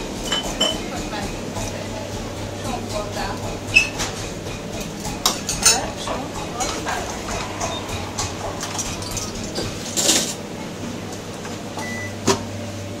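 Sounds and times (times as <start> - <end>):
kitchen knocks and clatters: 0.2 - 1.7, 2.7 - 10.4
faint voices: 0.6 - 11.7
low hum: 1.4 - 11.2.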